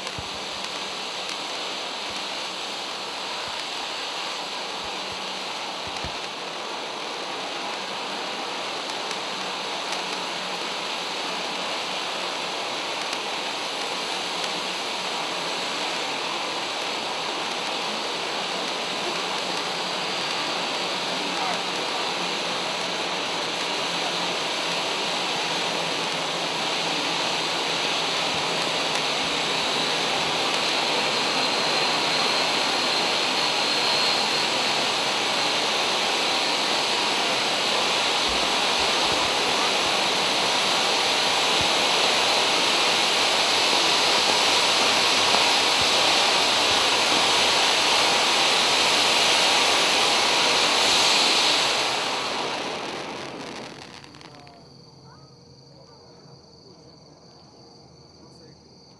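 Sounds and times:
fountain firework hissing: 0:00.0 - 0:54.6.

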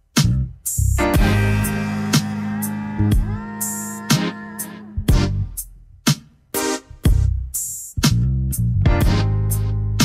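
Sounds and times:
deep bass note: 0:01.0 - 0:05.6.

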